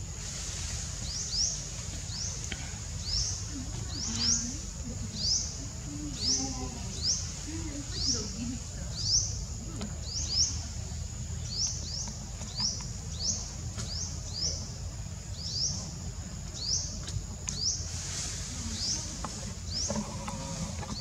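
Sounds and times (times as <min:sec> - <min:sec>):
bird chirping: 0:01.0 - 0:14.7.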